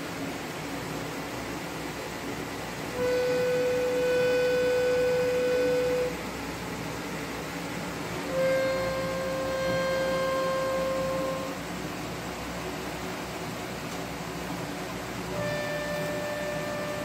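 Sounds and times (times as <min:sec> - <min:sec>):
steady background hum: 0:00.0 - 0:17.0
harmonium held notes: 0:02.9 - 0:06.3, 0:08.2 - 0:11.6, 0:15.3 - 0:17.0.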